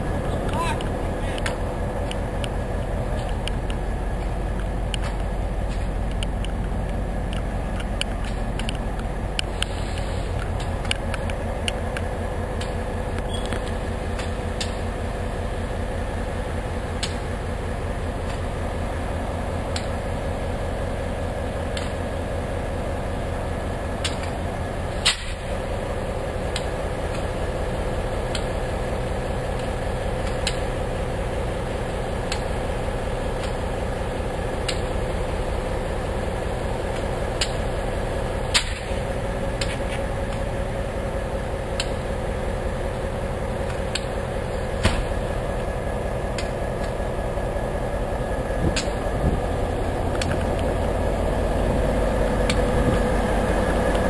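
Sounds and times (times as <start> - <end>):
locomotive engine idling: 0.0 - 54.0
sharp clicks: 3.2 - 14.8.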